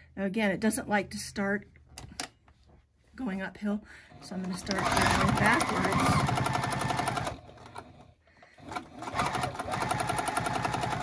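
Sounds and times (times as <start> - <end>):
electric sewing machine stitching: 4.1 - 11.0.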